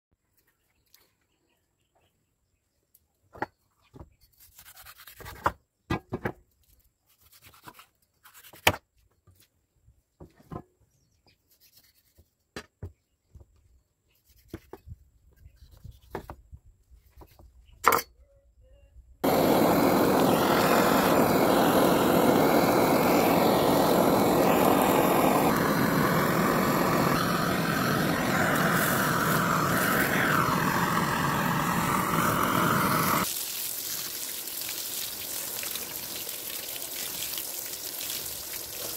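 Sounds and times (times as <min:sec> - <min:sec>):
gas blowtorch hissing: 0:19.2 - 0:33.3.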